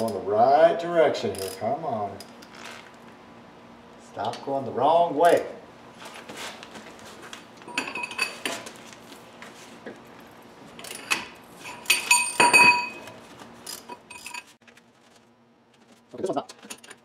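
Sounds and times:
metal tools clinking: 7.7s - 8.7s, 10.8s - 14.5s.

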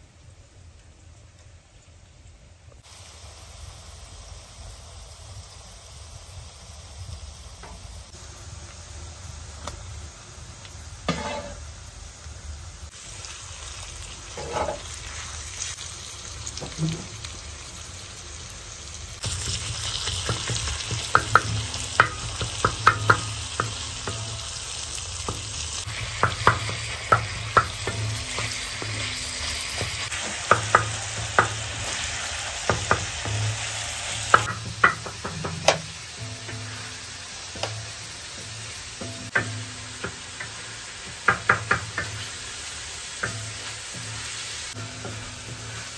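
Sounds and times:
onions and meat sizzling on griddle: 0.0s - 45.9s
spatula scraping and tapping griddle: 11.1s - 11.6s, 14.4s - 14.9s, 19.4s - 24.4s, 26.1s - 32.0s, 34.3s - 36.9s, 38.4s - 42.3s, 43.2s - 45.9s.

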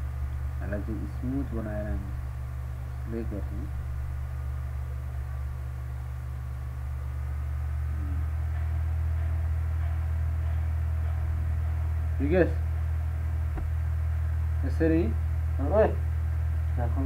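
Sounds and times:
electrical mains hum with hiss: 0.0s - 17.0s
faint murmur: 0.6s - 12.8s.

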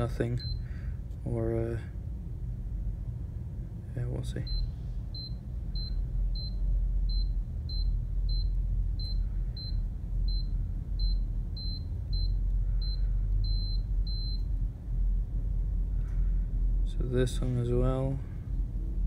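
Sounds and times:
continuity tester beeping: 0.0s - 0.8s, 4.4s - 14.6s
steady low hum: 0.0s - 19.0s.

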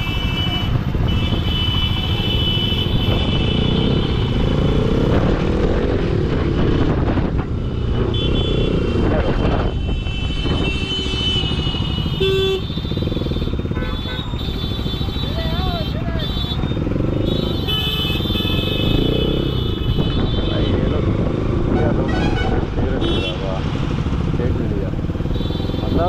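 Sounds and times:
vehicle horns honking: 0.0s - 4.6s, 8.0s - 21.1s, 21.7s - 23.5s, 25.2s - 26.0s
motorcycle engine running: 0.0s - 19.8s.

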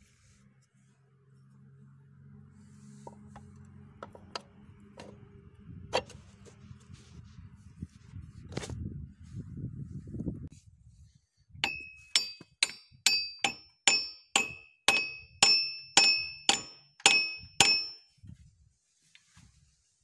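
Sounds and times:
scraping and handling noise: 2.8s - 5.2s
hammer striking metal: 11.6s - 18.0s.

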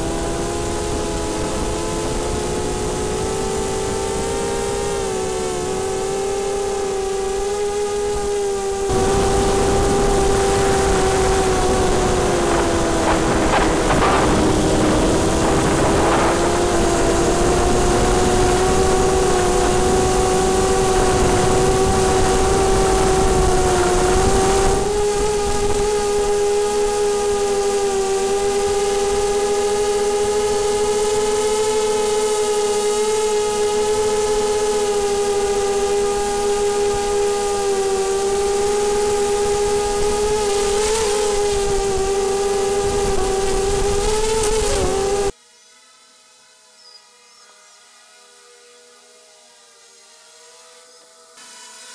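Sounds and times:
drone propellers whining: 0.0s - 45.3s
rushing noise: 8.9s - 23.5s.

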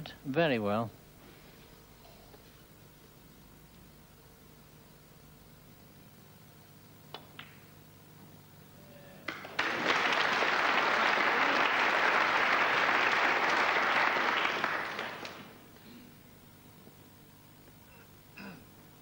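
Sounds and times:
audience applause: 9.3s - 15.7s.

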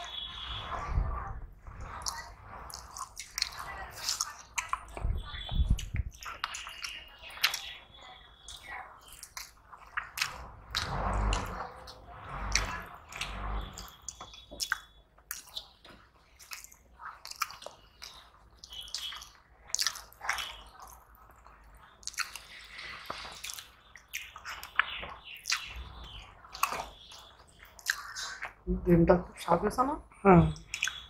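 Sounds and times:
wet chewing and lip-smacking: 2.0s - 7.8s, 8.5s - 10.8s, 12.6s - 28.6s, 30.6s - 31.0s.

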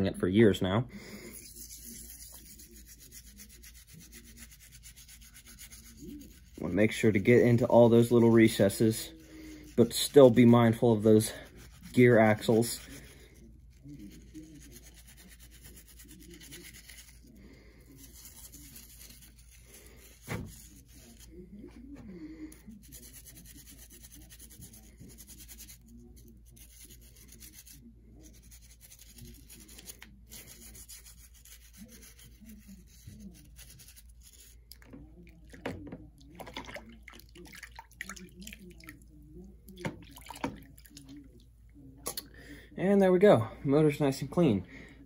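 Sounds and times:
brush scrubbing: 1.2s - 34.9s.

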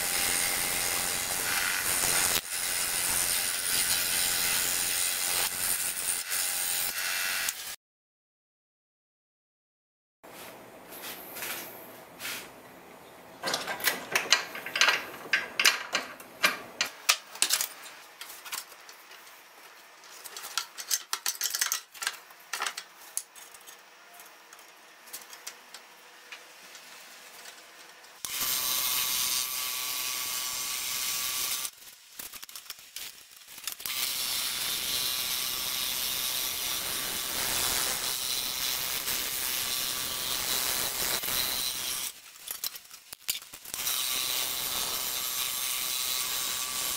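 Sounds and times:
scroll saw buzzing cutting wood: 0.0s - 7.8s, 28.2s - 31.7s, 33.8s - 42.2s, 43.7s - 46.9s.

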